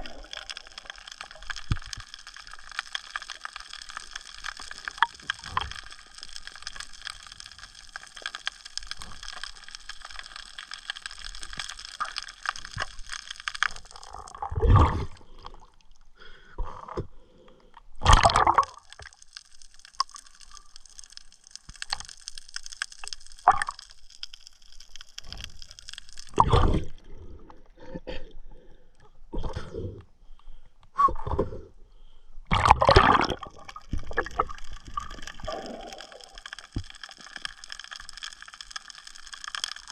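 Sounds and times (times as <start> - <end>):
water gurgling and sloshing: 13.8 - 17.4, 32.5 - 36.3.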